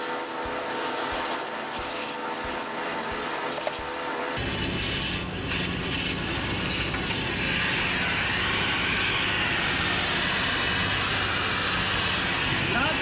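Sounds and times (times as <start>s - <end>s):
gas torch hissing: 0.0s - 13.0s.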